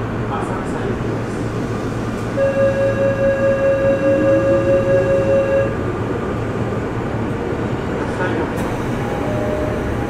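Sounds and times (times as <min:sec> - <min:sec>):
train running rumble: 0:00.0 - 0:10.0.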